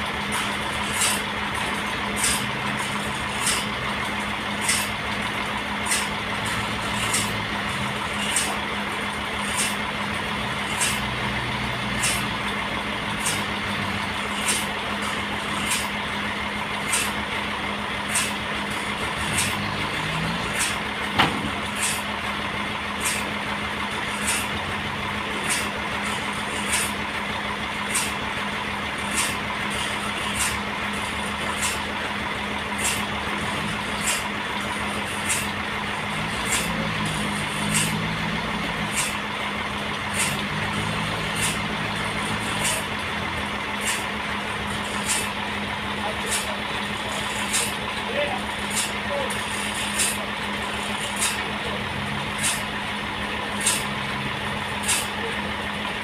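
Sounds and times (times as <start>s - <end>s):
sharp click: 7.0s - 7.4s, 12.0s - 12.3s, 37.6s - 38.1s, 42.6s - 42.9s, 43.8s - 44.0s, 47.4s - 47.8s, 49.9s - 50.2s, 51.2s - 51.4s, 53.6s - 53.9s, 54.8s - 55.2s.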